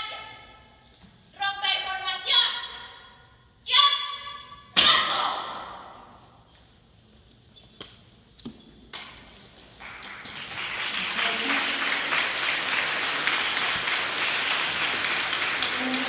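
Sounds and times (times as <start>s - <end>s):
audience applause: 9.8s - 16.0s.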